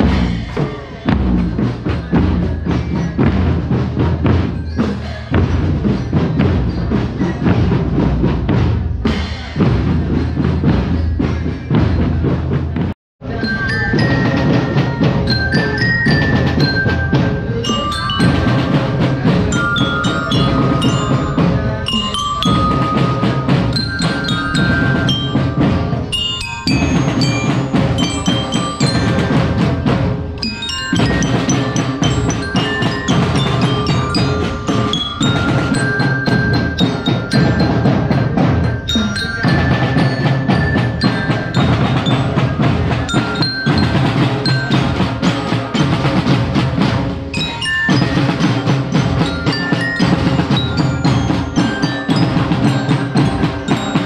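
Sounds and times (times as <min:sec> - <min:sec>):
marching drums: 0:00.0 - 0:54.0
glockenspiel melody: 0:13.2 - 0:54.0.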